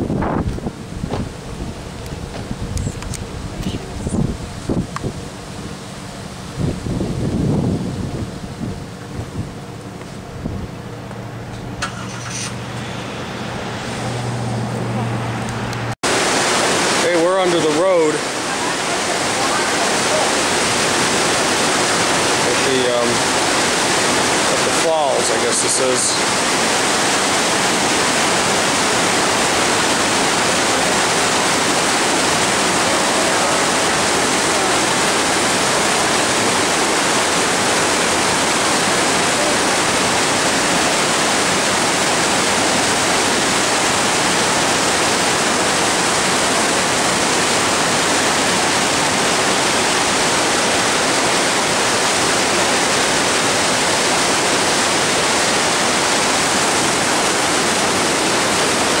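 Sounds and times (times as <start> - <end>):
white water rushing through gorge: 16.1 - 59.0.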